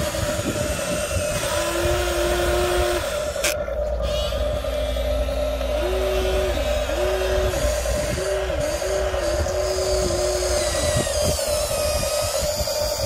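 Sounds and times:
electric motors whining: 0.0s - 13.0s.

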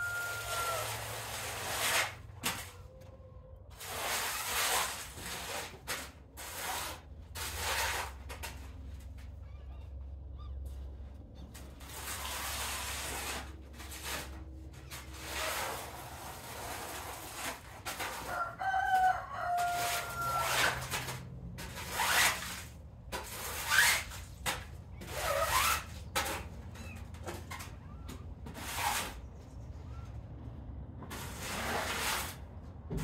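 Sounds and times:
rooster crowing: 0.0s - 1.1s, 18.2s - 20.9s.

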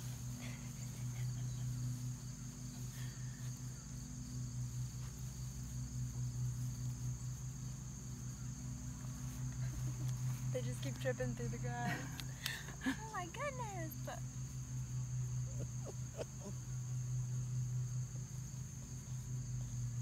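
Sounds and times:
insects trilling: 0.0s - 20.0s
steady low hum: 0.0s - 20.0s.

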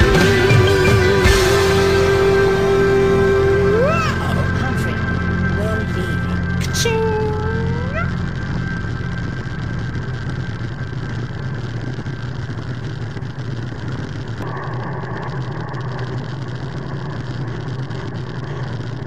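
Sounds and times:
bicycle road and wind noise: 8.1s - 19.0s.

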